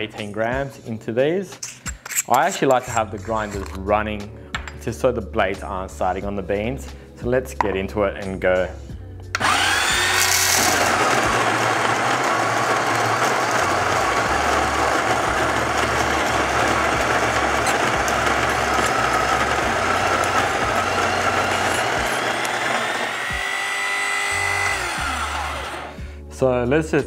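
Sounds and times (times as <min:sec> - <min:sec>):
electric coffee grinder grinding: 0:09.4 - 0:26.1
beans rattling into hopper: 0:10.2 - 0:23.0.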